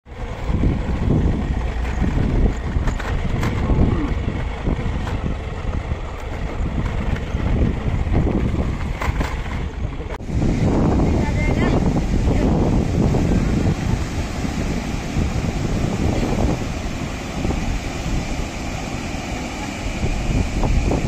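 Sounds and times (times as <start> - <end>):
motorcycle engine running: 0.0 - 21.0
wind buffeting microphone: 0.1 - 21.0
sharp knocks and rattles: 1.7 - 3.8, 8.4 - 10.2.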